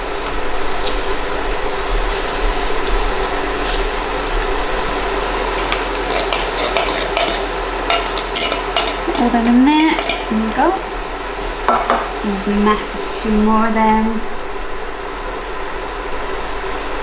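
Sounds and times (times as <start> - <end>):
food sizzling in a frying pan: 0.0 - 17.0
metal spoon clicking and scraping: 5.7 - 9.4.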